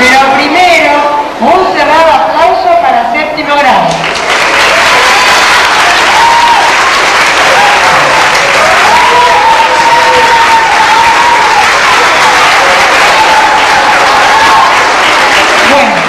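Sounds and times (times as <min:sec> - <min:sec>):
audience applauding: 0:03.9 - 0:16.0.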